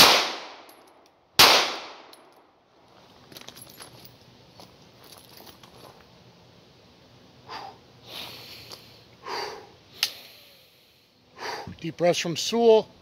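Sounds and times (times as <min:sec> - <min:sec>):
man breathing deeply: 0:07.4 - 0:11.8.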